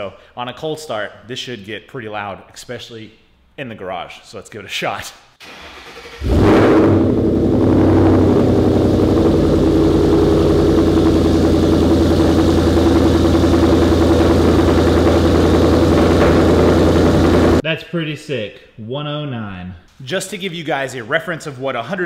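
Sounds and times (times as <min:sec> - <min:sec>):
car engine starting and idling: 0:05.4 - 0:17.6.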